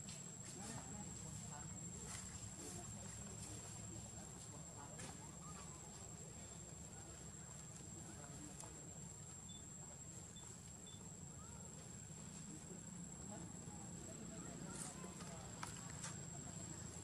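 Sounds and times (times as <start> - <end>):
insect trill: 3.6 - 17.0.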